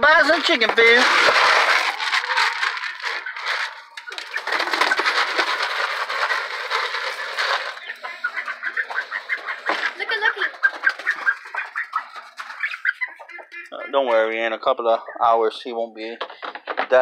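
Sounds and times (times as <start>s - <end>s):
grain poured from scoop: 0.4s - 3.7s.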